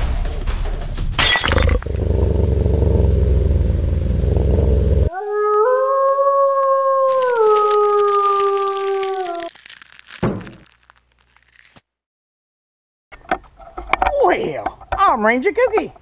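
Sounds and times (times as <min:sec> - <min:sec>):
low rumbling noise: 0:01.6 - 0:05.1
wolf howling: 0:05.0 - 0:09.5.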